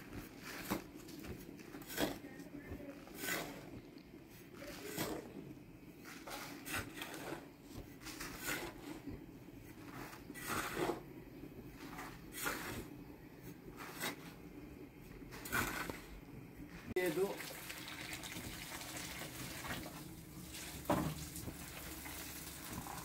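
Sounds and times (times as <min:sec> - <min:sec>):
hand trowel scraping sand and gravel: 0:00.2 - 0:03.8, 0:04.4 - 0:05.4, 0:06.0 - 0:09.1, 0:09.7 - 0:11.1, 0:11.7 - 0:12.9, 0:13.7 - 0:14.4, 0:15.3 - 0:16.2.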